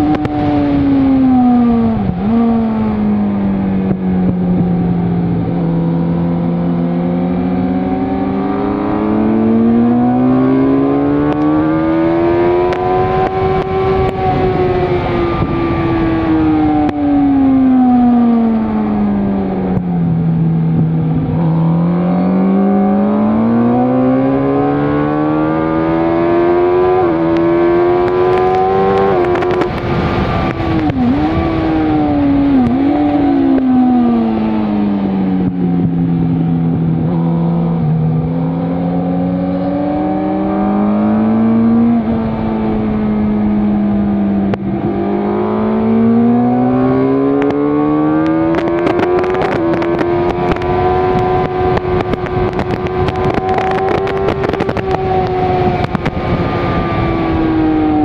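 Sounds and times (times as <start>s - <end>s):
motorcycle engine accelerating: 0.0s - 58.0s
steady rushing noise: 24.6s - 58.0s.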